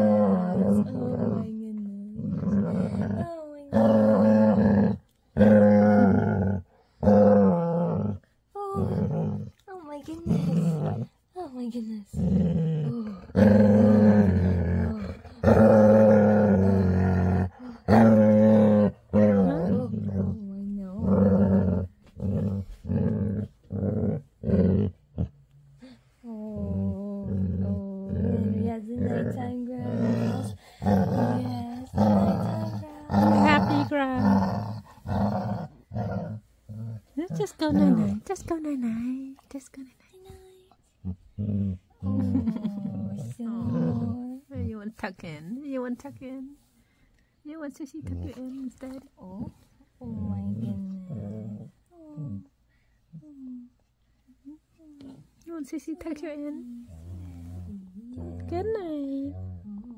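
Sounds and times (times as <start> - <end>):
dog growling: 0.0 - 11.2, 12.1 - 39.1, 41.0 - 44.8, 48.0 - 53.3, 56.8 - 59.9.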